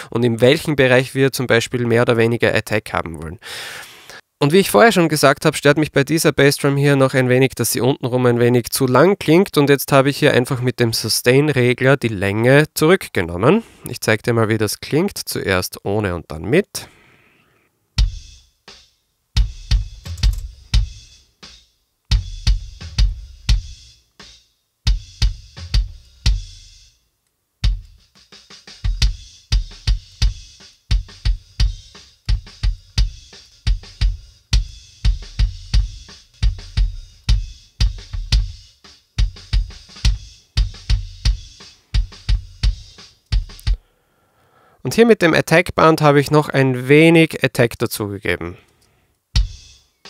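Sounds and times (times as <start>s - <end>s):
snare and cymbal: 18.0s - 27.0s, 27.6s - 43.8s, 49.4s - 50.0s.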